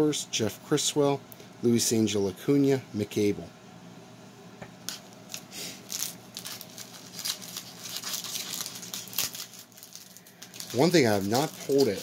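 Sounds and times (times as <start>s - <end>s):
wrapper crinkling and tearing: 5.3s - 12.0s.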